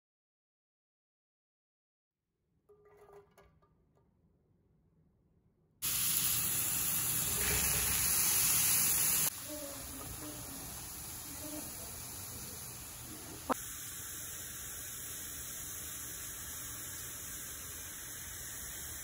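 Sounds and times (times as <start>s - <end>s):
vegetables sizzling in a frying pan: 5.8s - 19.0s.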